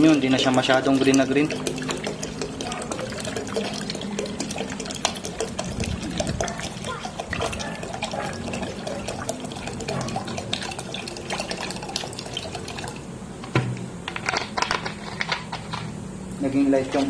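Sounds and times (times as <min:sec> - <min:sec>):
water drips and pops: 0:00.0 - 0:13.0
water trickling and splashing: 0:00.0 - 0:13.1.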